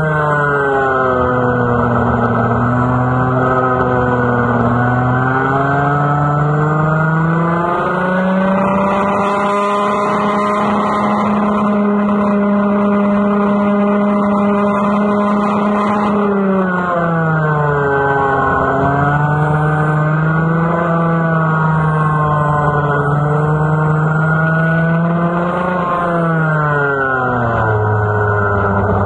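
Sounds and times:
kart engine racing: 0.0s - 29.0s.

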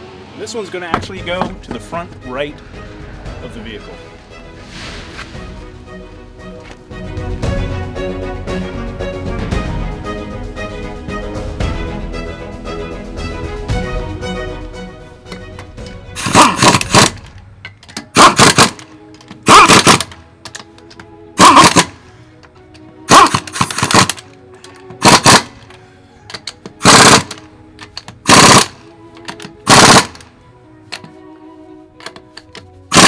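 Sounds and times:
faint background music: 0.0s - 33.0s
impact wrench hammering: 16.2s - 18.8s, 23.1s - 24.2s.

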